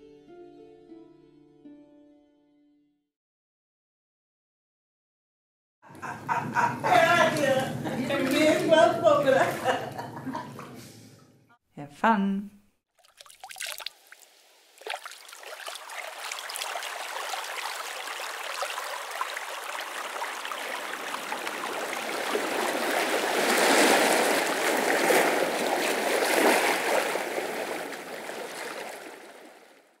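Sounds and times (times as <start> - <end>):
running water: 6.9 - 9.9, 13.0 - 29.8.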